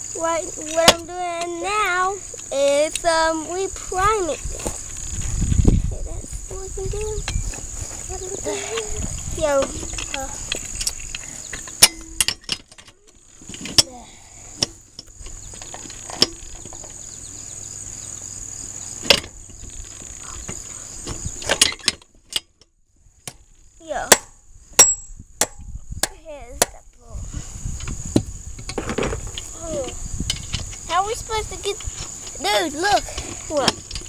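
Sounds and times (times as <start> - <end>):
high-pitched insect trill: 0.0 - 22.0, 22.8 - 34.0
metal parts knocking: 11.5 - 13.9.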